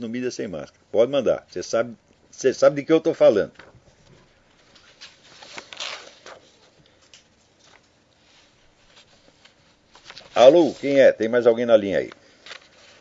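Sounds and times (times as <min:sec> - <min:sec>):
paper rustling and shuffling: 0:03.4 - 0:13.0.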